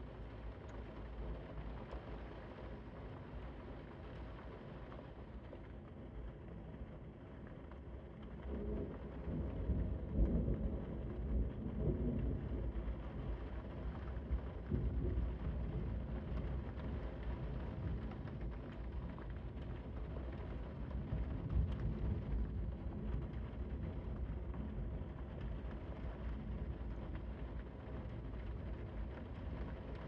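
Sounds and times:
steady rain: 0.0 - 30.0
rolling thunder: 8.6 - 13.5.

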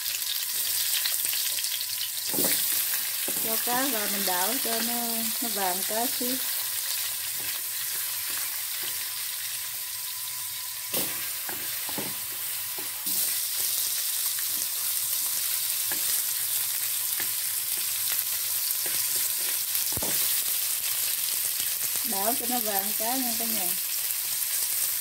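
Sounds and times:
fish sizzling in oil: 0.0 - 25.0.

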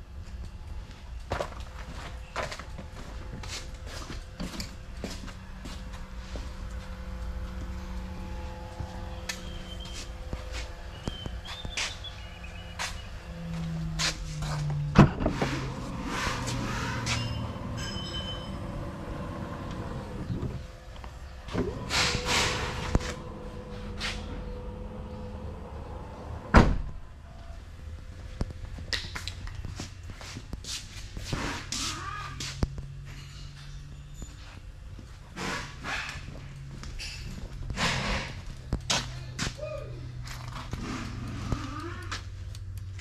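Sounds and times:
faint steady hum: 0.0 - 30.7
knocks and rustling clatter: 0.3 - 27.0, 28.0 - 39.6, 40.2 - 43.0.

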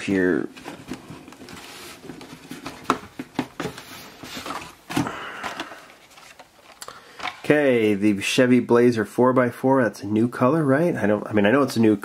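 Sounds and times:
plastic packaging rustling: 0.4 - 7.6.

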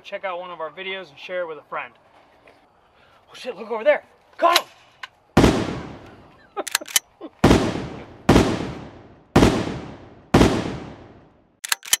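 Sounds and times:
shotgun blasts echoing: 5.4 - 6.1, 7.4 - 11.4
short sharp clicks: 6.7 - 7.0, 11.6 - 12.0.

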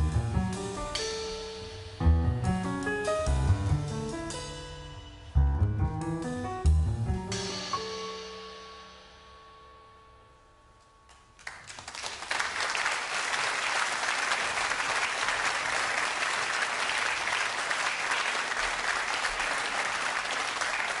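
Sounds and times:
audience applause: 11.4 - 21.0.

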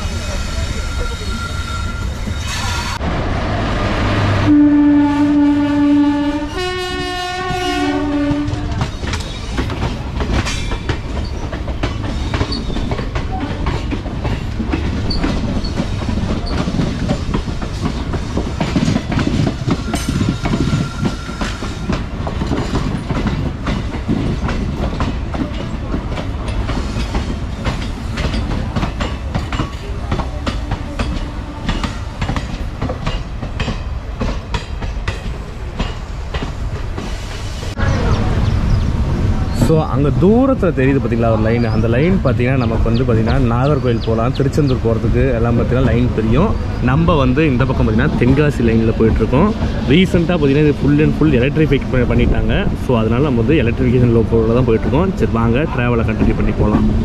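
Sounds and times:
locomotive horn: 4.2 - 8.8
train wheels clattering on rail joints: 7.1 - 38.8, 40.0 - 57.0.

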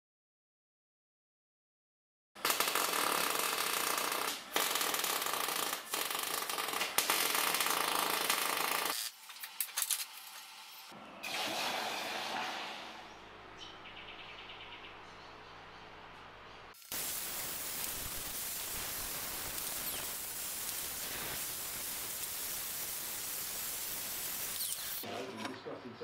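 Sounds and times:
welding arc crackling: 2.4 - 10.9, 16.7 - 25.0.

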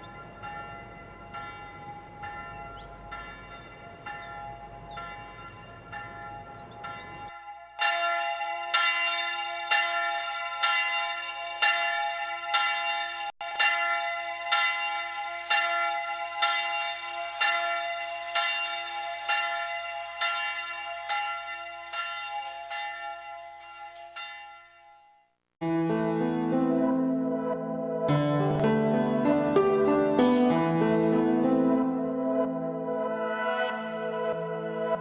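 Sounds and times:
church bell tolling: 0.0 - 25.0.

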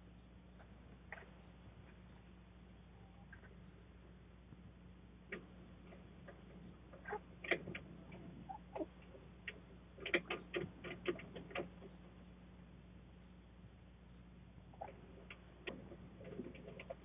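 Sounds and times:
chickens pecking and scratching: 0.6 - 2.2, 5.2 - 12.2, 14.7 - 17.0.

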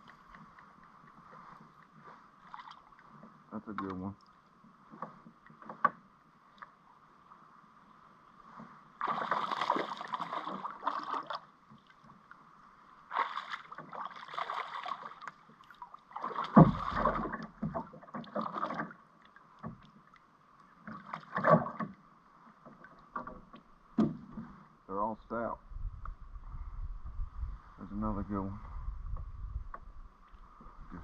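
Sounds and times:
fish splashing and thrashing: 9.0 - 12.0, 13.1 - 19.9, 20.8 - 21.9
hard thump: 16.6 - 17.3.

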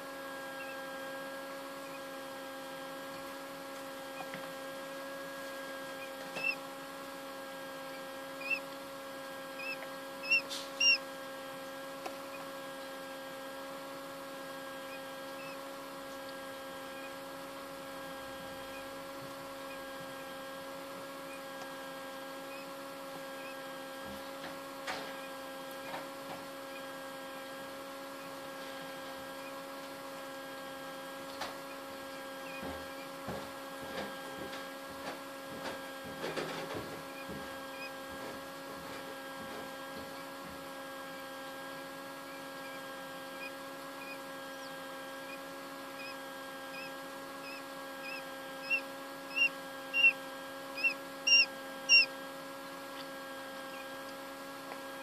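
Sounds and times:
incubator electrical hum: 0.0 - 55.0
chick peeping: 7.9 - 8.7, 9.6 - 11.0, 46.8 - 50.2, 50.8 - 52.1.

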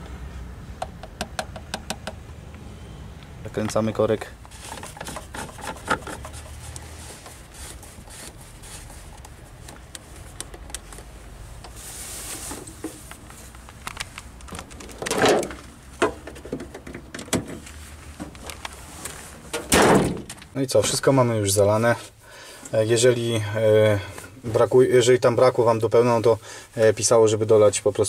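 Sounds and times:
rustling and light clicks: 3.6 - 21.0
car bonnet shutting with thud: 19.6 - 20.3.

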